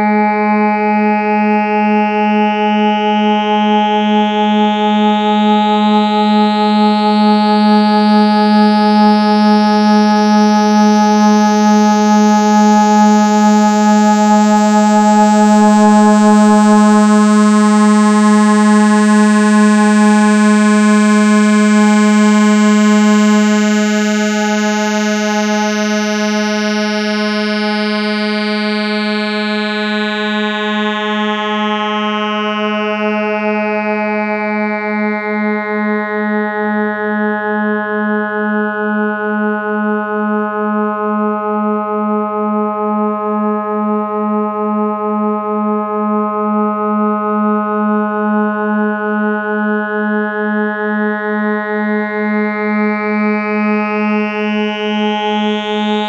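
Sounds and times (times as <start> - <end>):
low synthesizer drone: 3.8 - 33.1.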